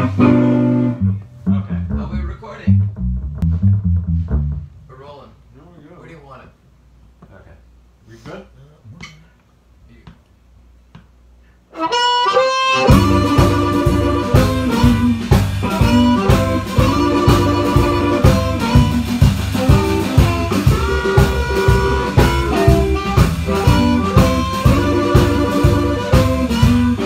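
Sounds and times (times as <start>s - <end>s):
harmonica melody: 0.0s - 1.4s, 11.7s - 27.0s
blues band playing: 0.0s - 5.2s, 11.7s - 27.0s.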